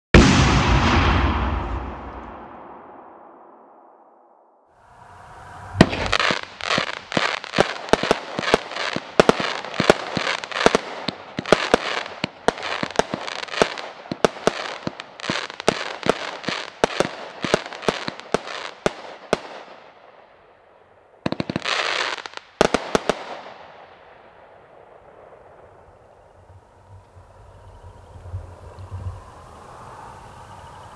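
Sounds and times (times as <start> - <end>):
fireworks bangs: 0.1 - 4.0, 4.8 - 20.3, 21.1 - 30.9
fireworks crackling: 4.8 - 19.9, 21.2 - 30.9.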